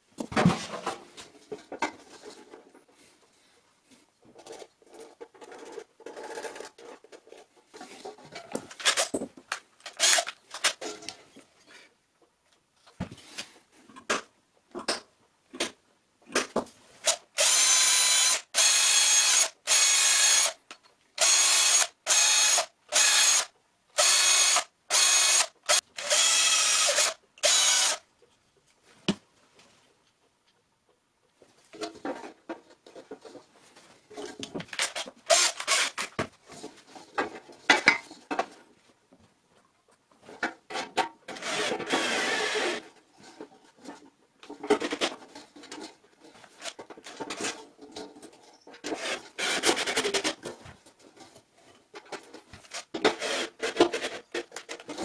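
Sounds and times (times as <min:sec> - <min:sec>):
cordless drill running in bursts: 0:17.1 - 0:20.6, 0:21.2 - 0:28.0, 0:35.3 - 0:36.0, 0:41.4 - 0:42.8, 0:49.0 - 0:49.7, 0:53.2 - 0:53.5.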